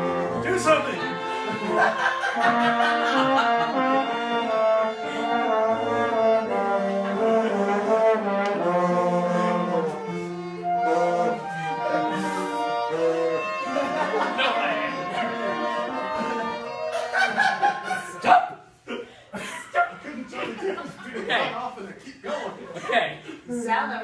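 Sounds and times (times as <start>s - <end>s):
chamber ensemble playing chords: 0.0s - 18.2s.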